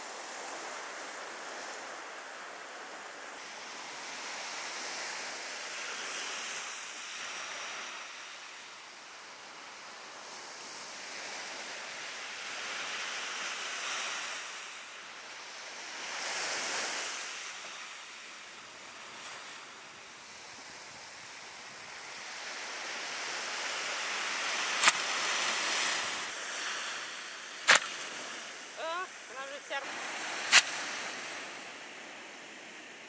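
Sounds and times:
surf washing onto beach: 0.0 - 33.0
wind: 0.0 - 33.0
pneumatic launcher pop: 24.8 - 25.0, 27.6 - 28.0, 30.5 - 30.8.

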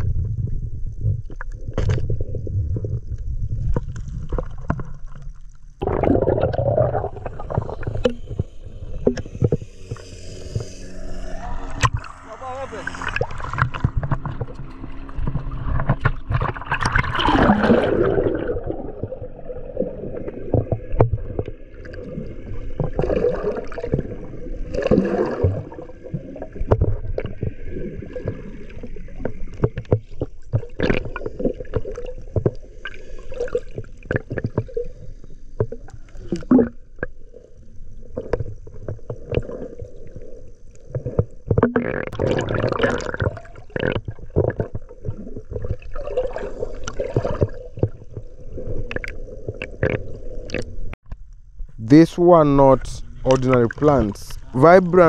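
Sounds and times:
water sloshing and gurgling: 0.0 - 55.0.

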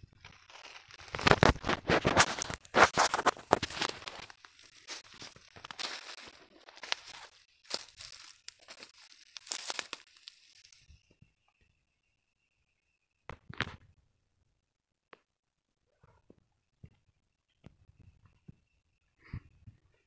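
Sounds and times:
footsteps crunching dry leaves: 0.1 - 10.8.

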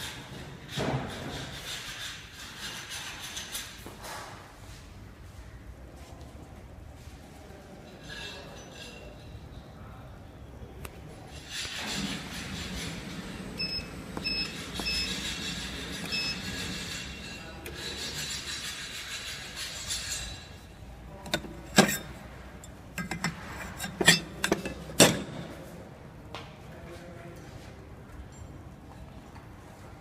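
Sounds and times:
sharp clinks and knocks: 14.7 - 25.5.

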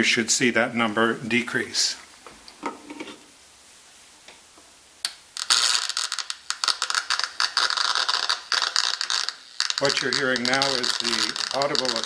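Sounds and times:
crackling interference buzz: 3.2 - 12.0.

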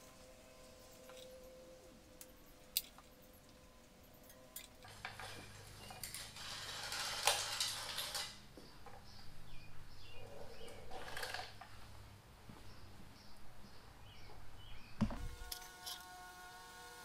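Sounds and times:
bicycle parts rustling and clattering: 4.2 - 9.2, 10.3 - 11.9.

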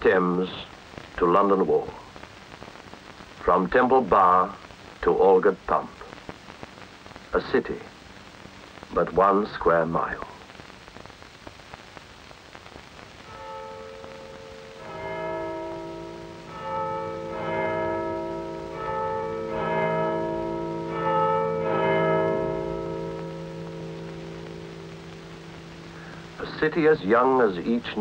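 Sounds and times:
faint film soundtrack hiss: 0.0 - 28.0
church bells ringing: 13.3 - 25.9.

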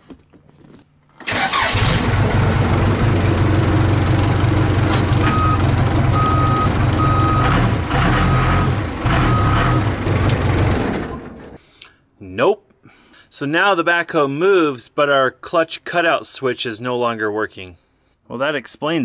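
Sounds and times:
diesel engine starting and running: 1.2 - 11.6.

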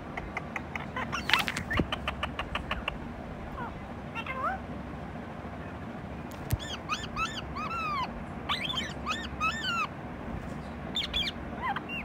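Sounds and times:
parakeet calling: 0.6 - 4.6, 6.3 - 10.0, 10.6 - 12.0.

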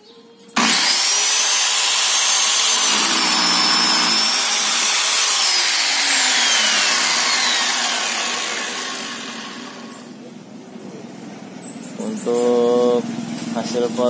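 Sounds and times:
saw cutting wooden board: 0.6 - 10.2
miter saw whining: 0.6 - 10.3.

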